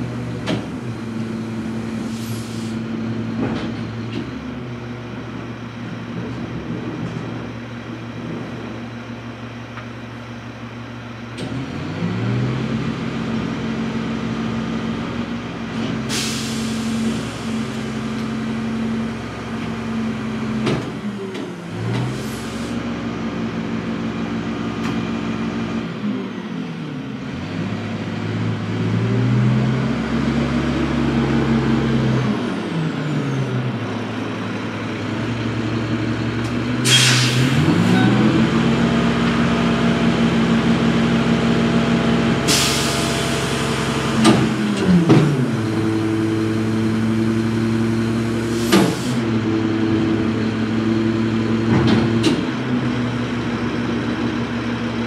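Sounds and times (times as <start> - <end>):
air brake hisses: 2.0 - 2.8, 16.1 - 17.6, 22.2 - 22.8, 36.8 - 37.6, 42.4 - 43.8, 48.5 - 49.2
truck diesel engine revving: 11.4 - 55.0.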